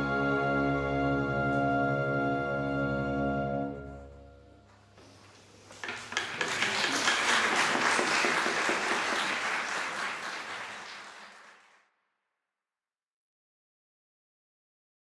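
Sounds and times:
audience applause: 5.7 - 11.9.

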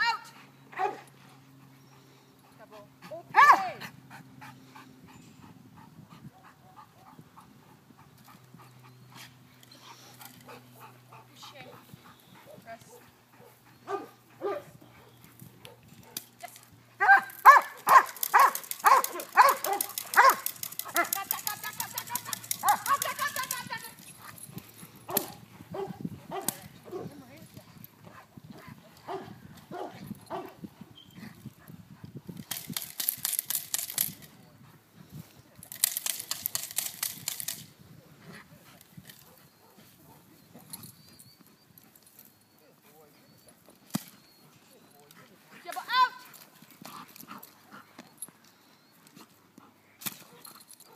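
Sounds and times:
dog barking: 13.4 - 14.7, 17.0 - 20.4, 25.1 - 27.1, 29.1 - 30.6
bite sleeve crackling rattle: 16.0 - 24.5, 32.3 - 34.4, 35.6 - 37.7.

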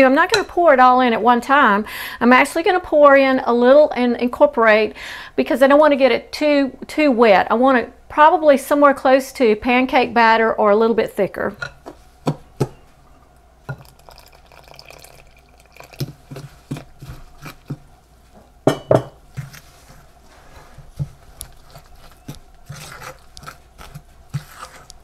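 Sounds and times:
batter being stirred in a bowl: 13.7 - 18.0, 19.2 - 25.0
utensil knocking against bowl: 18.7 - 19.2.

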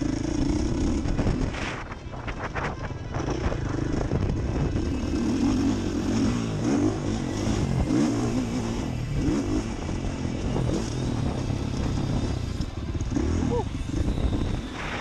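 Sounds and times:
motocross engine revving: 3.2 - 15.0.

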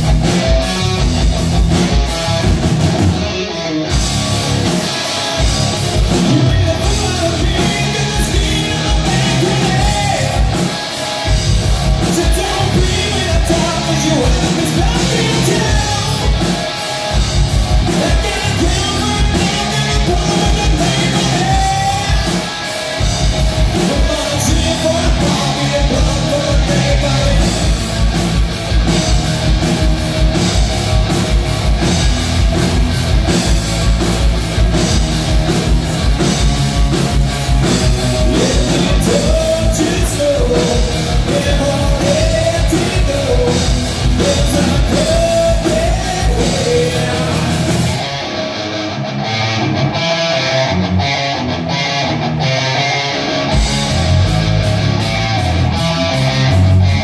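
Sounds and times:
drum kit: 0.0 - 48.6, 53.2 - 57.0
bass guitar: 0.0 - 57.0
electric guitar: 0.0 - 57.0
man singing: 6.2 - 10.8, 12.0 - 16.4, 17.9 - 22.5, 23.8 - 27.7, 38.1 - 48.0.

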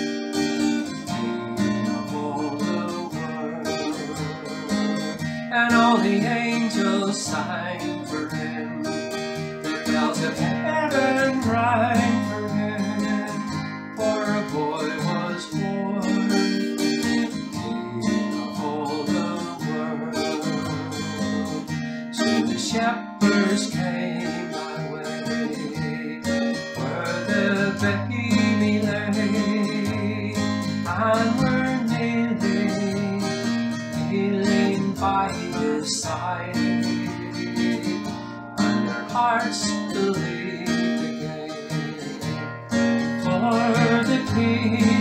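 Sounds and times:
acoustic guitar strumming: 0.0 - 45.0
man singing: 0.6 - 45.0.

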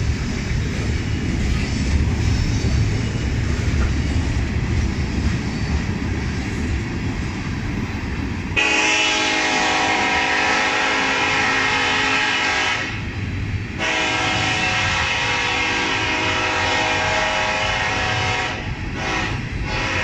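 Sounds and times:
freight cars rolling rumble: 0.0 - 20.0
locomotive air horn chord: 8.6 - 13.1, 13.8 - 20.0.

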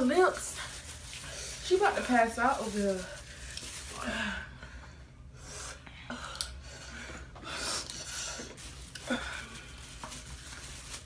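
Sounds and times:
people breathing hard: 4.0 - 9.8.

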